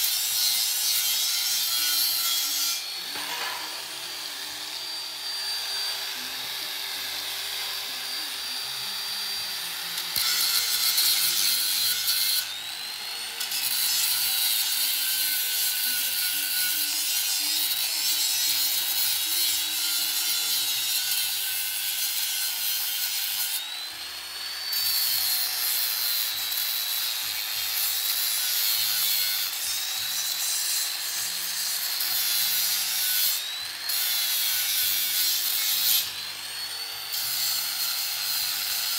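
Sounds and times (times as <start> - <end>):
angle grinder grinding steel: 0.0 - 38.9.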